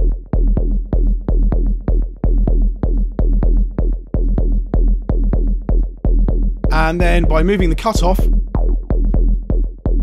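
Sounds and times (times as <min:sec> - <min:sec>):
heavy synth bass: 0:06.7 - 0:08.4.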